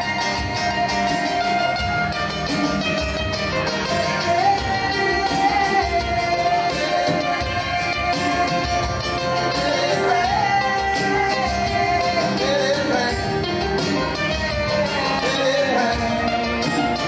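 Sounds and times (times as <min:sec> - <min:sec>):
acoustic guitars strummed: 0:00.0 - 0:17.0
hand drum played: 0:00.0 - 0:17.0
man singing: 0:03.6 - 0:17.0.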